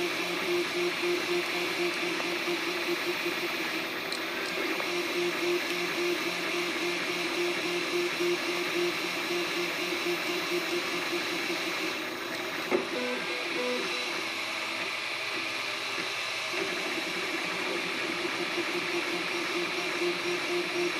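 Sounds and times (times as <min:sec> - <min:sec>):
stepper motor tones: 0:00.0 - 0:15.2.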